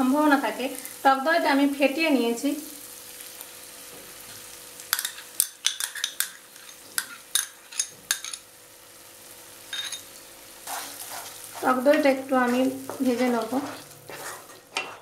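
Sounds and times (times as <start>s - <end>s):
faint sizzle of frying paste: 0.0s - 15.0s
metal spoon clinking against a cup: 9.7s - 10.1s.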